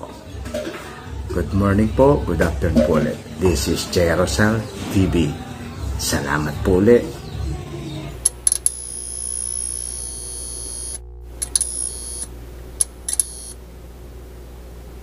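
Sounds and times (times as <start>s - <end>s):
low steady hum: 7.4s - 15.0s
high buzzing hiss: 8.2s - 15.0s.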